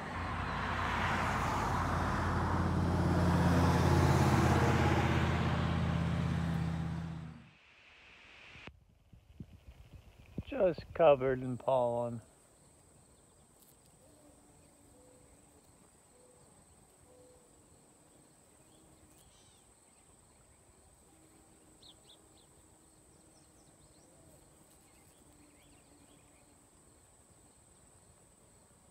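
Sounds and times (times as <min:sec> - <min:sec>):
faint bird chirps: 0:12.3 - 0:28.1.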